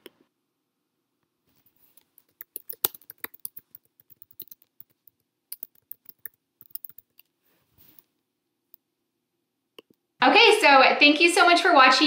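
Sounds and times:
typing on a keyboard: 2.0s - 7.3s.

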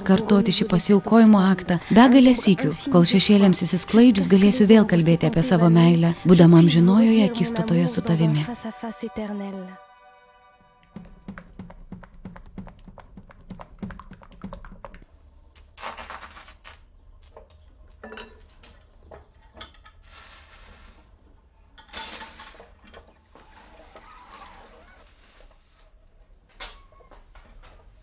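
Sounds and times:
batter hissing on hot iron: 20.0s - 21.2s.

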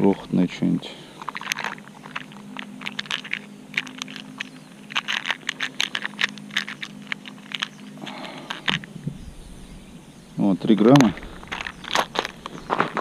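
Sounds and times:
faint low hum: 0.0s - 13.0s
small metal pieces rattling: 1.2s - 8.8s, 10.9s - 13.0s.

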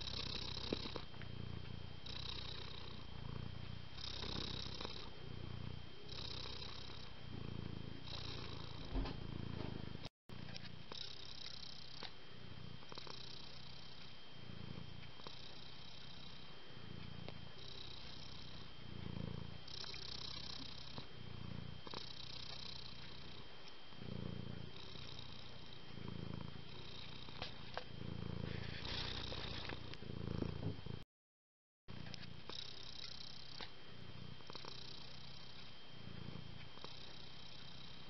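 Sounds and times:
cat purring: 0.0s - 31.0s, 32.0s - 38.0s.

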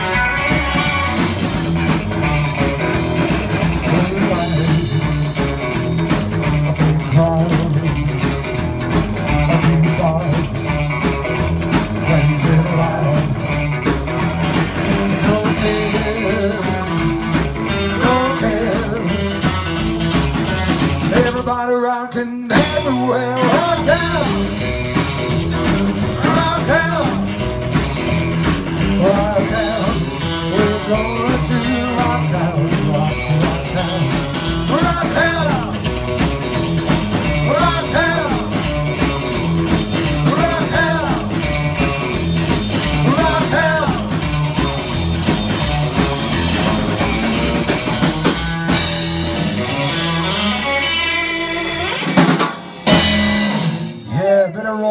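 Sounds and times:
man singing: 0.0s - 1.4s, 3.7s - 5.6s, 6.8s - 8.4s, 9.2s - 10.8s, 11.8s - 13.6s, 14.8s - 19.6s, 21.0s - 27.5s, 28.7s - 36.0s, 37.2s - 42.0s, 42.7s - 44.4s, 54.0s - 54.9s
live rock and roll band: 0.0s - 54.9s.

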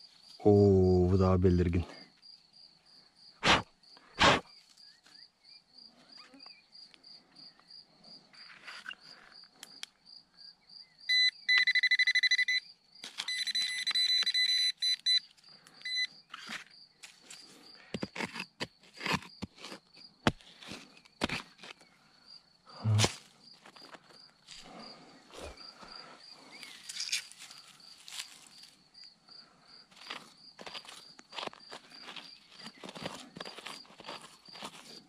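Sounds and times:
scraping strikes in soil: 3.4s - 4.8s, 16.3s - 21.9s, 22.8s - 23.9s, 29.9s - 35.0s
pinpointer pulsing high beep: 11.1s - 12.7s, 13.3s - 16.1s.

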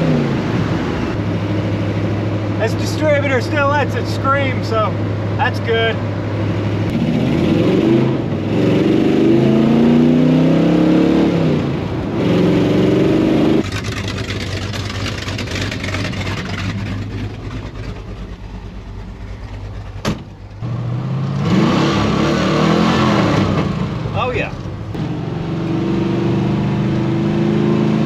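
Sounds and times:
car engine accelerating: 6.3s - 28.0s.

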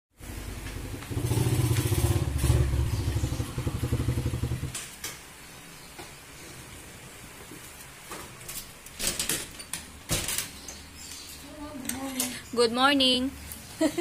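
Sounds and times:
engine running with low pulse: 0.2s - 4.8s.

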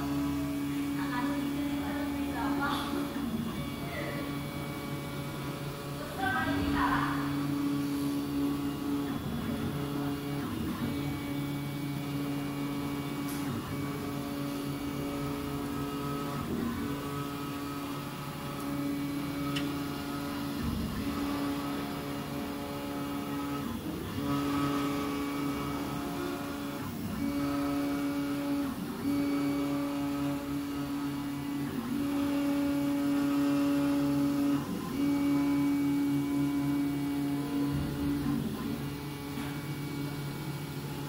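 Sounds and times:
stepper motors whining: 0.0s - 41.0s.

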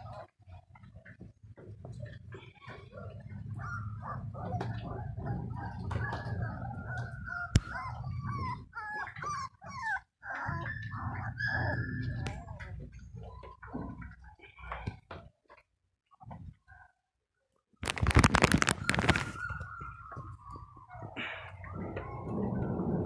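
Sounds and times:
dog whimpering and whining: 2.8s - 14.8s, 18.4s - 22.7s
low rumble: 21.2s - 23.0s.

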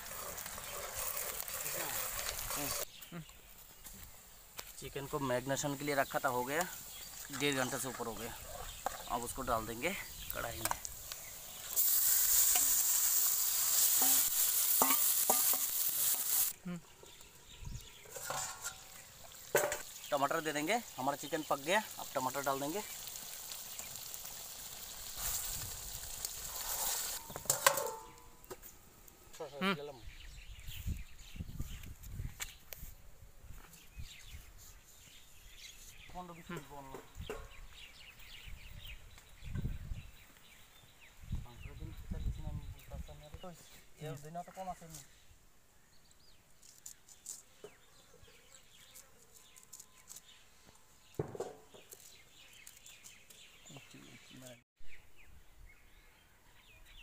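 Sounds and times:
curry sizzling in a pan: 5.1s - 16.6s, 18.1s - 28.2s
metal plate clanking onto pan: 14.8s - 15.7s, 18.1s - 18.9s, 19.6s - 19.8s, 27.4s - 28.2s
herb leaves being cut: 46.6s - 47.7s, 48.8s - 50.4s.

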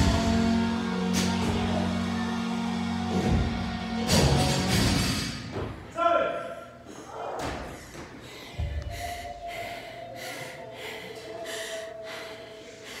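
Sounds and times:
person panting hard: 7.8s - 13.0s.

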